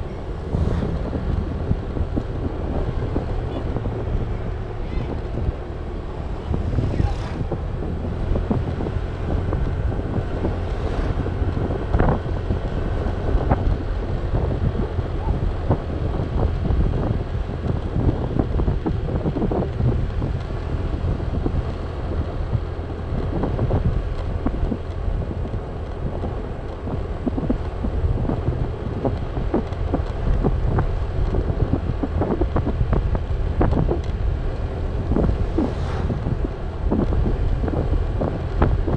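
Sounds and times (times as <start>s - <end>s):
scooter running and tyre noise: 0.0s - 38.9s
wind buffeting microphone: 0.0s - 38.9s.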